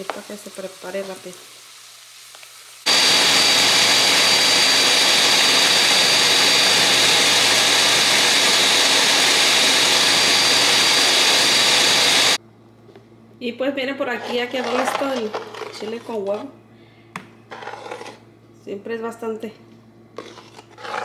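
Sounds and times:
blender running at high speed: 2.9s - 12.4s.

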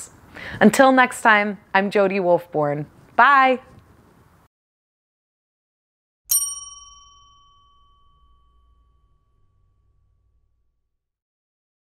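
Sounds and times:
bell-like ding: 6.3s - 10.8s.

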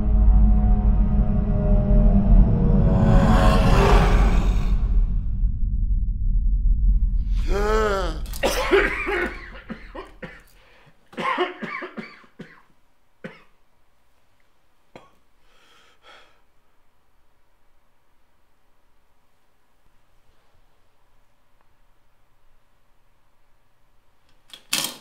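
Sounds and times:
low rumble: 0.0s - 9.8s
man gasping: 7.3s - 11.0s, 15.4s - 16.4s
man coughing harshly: 7.4s - 13.5s.

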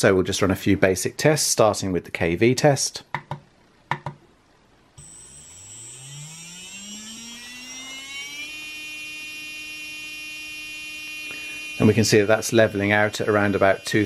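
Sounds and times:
electric motor whine rising: 5.0s - 14.0s.

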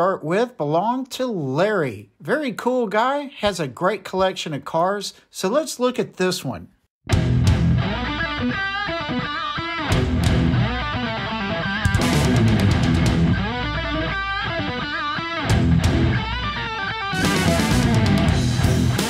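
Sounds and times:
rock music with electric guitar: 7.1s - 19.0s.

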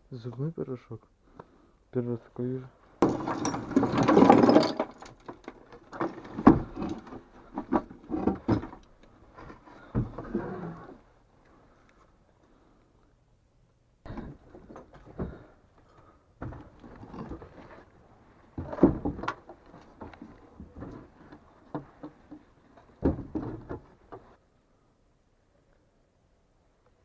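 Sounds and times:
wood and debris clattering: 3.0s - 11.0s, 14.1s - 24.4s.

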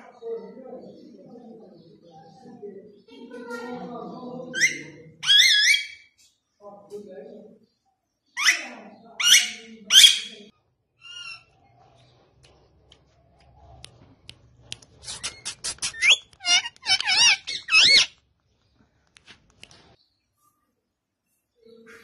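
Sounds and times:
parakeet squawking: 4.5s - 6.1s, 8.4s - 11.5s, 15.0s - 18.1s
parakeet clicking and warbling: 12.4s - 18.3s.

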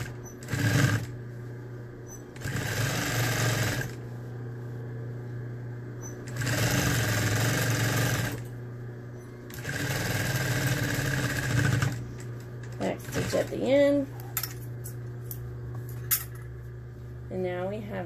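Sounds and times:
sewing machine stitching: 0.0s - 1.2s, 2.1s - 4.0s, 6.0s - 8.4s, 9.5s - 12.0s
steady low hum: 0.0s - 18.0s.

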